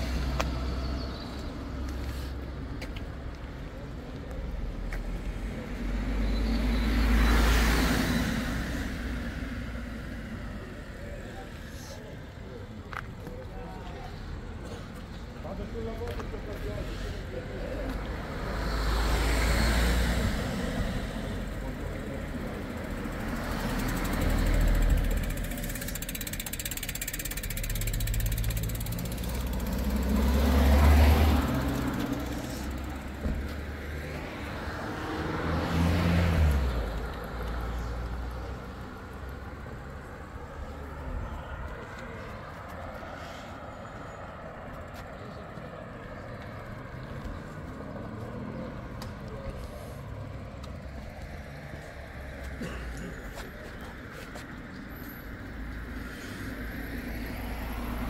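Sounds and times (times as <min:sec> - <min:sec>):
cars passing on road: 0:00.0 - 0:58.0
steady traffic background: 0:00.0 - 0:58.0.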